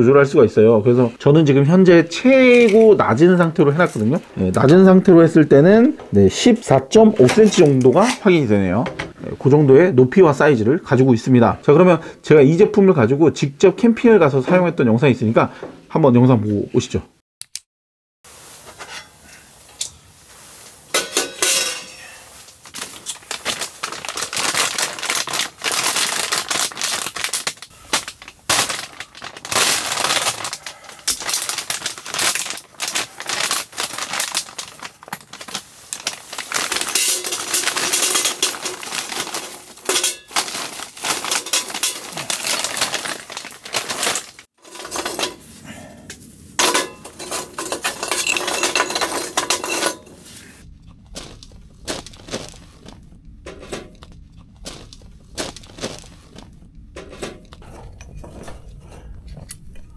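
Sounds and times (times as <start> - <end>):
metal grill parts clinking: 20.9 - 22.1, 36.9 - 38.8, 39.8 - 40.4, 44.6 - 45.4, 46.6 - 50.2
charcoal clattering in metal bowl: 20.9 - 45.4, 46.6 - 50.2.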